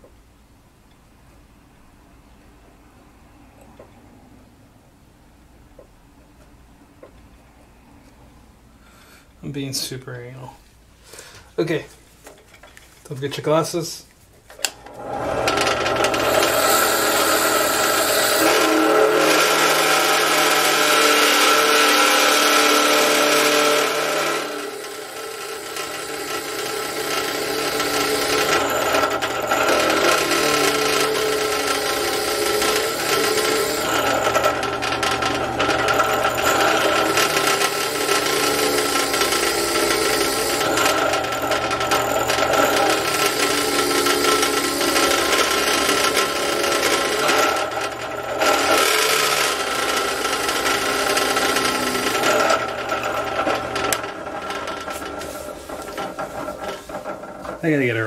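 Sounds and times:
drill press motor hum: 0:14.6 - 0:57.6
drill bit rasping through workpiece: 0:14.9 - 0:57.3.

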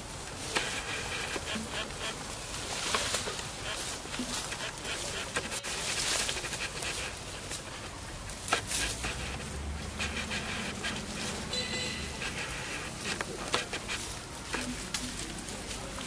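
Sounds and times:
rustling in leaves and twigs: 0:00.0 - 0:16.0
twigs snapping: 0:01.4 - 0:10.4, 0:12.9 - 0:16.0.

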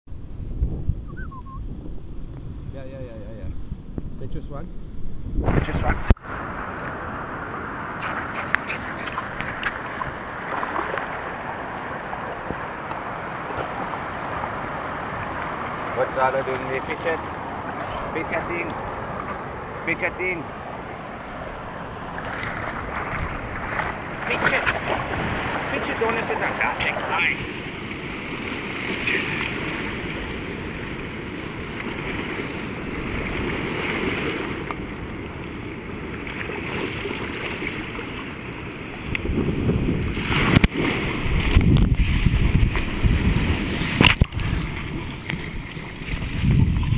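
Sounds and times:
wind buffeting microphone: 0:00.1 - 0:06.2, 0:21.2 - 0:35.1, 0:38.7 - 0:46.9
small waves washing on sand: 0:05.5 - 0:46.9.

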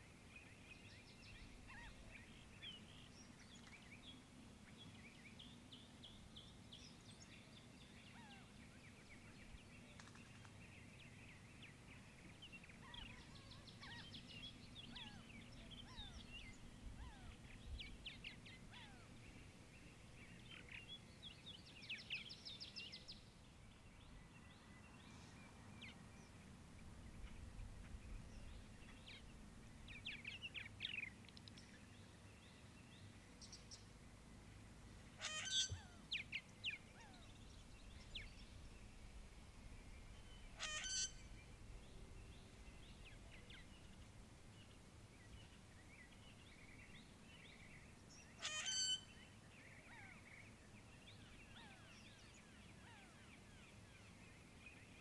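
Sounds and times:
harsh bird calls: 0:35.2 - 0:36.0, 0:40.5 - 0:41.4, 0:48.4 - 0:49.1
bird chirps and twitters: 0:35.2 - 0:38.6, 0:40.2 - 0:41.4, 0:48.2 - 0:49.2.

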